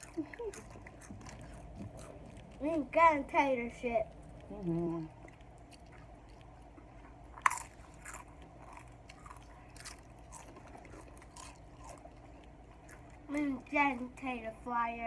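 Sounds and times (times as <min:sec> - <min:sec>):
person crunching chips: 0:04.6 - 0:13.4.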